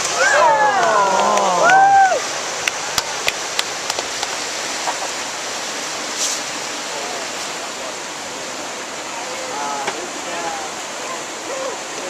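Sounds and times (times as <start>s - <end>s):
stream rapids rushing: 0.0s - 12.0s.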